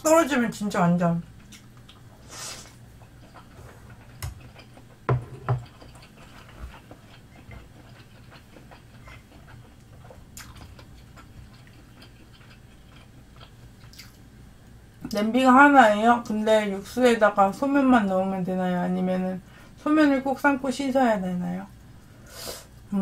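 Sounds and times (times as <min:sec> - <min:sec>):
person chewing food: 0:01.4 - 0:14.2.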